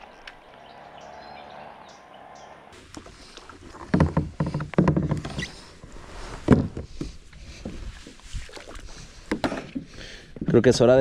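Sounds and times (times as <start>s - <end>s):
plastic kayak knocking and scraping: 2.8s - 8.6s, 9.2s - 10.9s.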